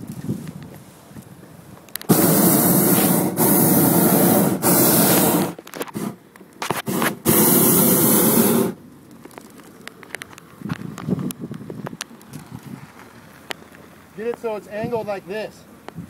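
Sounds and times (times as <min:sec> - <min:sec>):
propane burner firing: 0:01.9 - 0:09.5.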